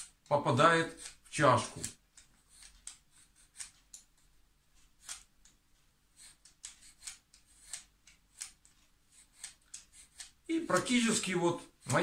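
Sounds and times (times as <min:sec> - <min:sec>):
vegetable peeler scraping ginger: 0:00.0 - 0:04.0, 0:06.1 - 0:12.0.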